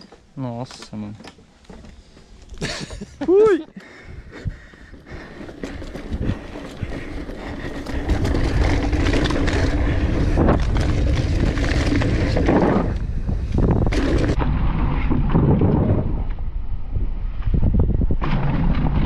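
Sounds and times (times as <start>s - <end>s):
bike rattling over bumps: 3.9s - 16.6s, 17.3s - 19.0s
wind buffeting camera: 4.0s - 19.0s
tyres rumbling on dirt: 4.4s - 16.2s.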